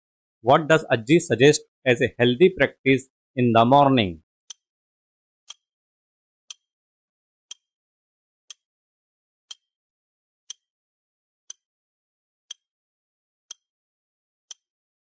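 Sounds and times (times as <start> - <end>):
clock-like timer ticks: 5.5 - 5.7, 6.5 - 6.7, 7.5 - 7.7, 8.5 - 8.7, 9.5 - 9.7, 10.5 - 10.7, 11.5 - 11.7, 12.5 - 12.7, 13.5 - 13.7, 14.5 - 14.7.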